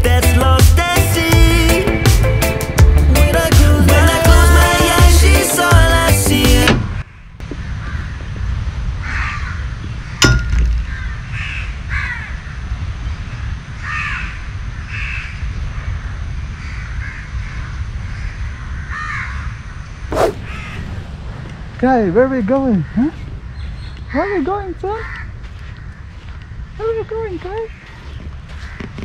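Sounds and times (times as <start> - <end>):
background music: 0.0 - 7.0
crows cawing: 7.0 - 8.3, 9.0 - 10.2, 10.8 - 12.6, 13.8 - 19.9, 22.6 - 23.2, 24.8 - 26.9, 27.6 - 29.0
steady low rumble: 19.9 - 27.3.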